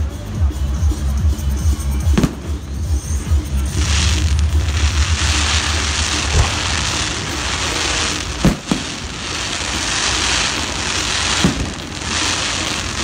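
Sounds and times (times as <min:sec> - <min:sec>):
fireworks crackling: 0:01.8 - 0:13.0
firework bangs: 0:02.2 - 0:13.0.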